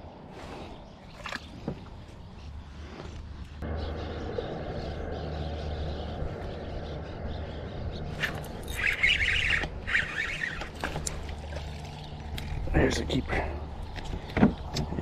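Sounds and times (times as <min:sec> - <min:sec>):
steady low hum: 0:03.4 - 0:13.9
fishing reel gears chattering: 0:08.6 - 0:10.7.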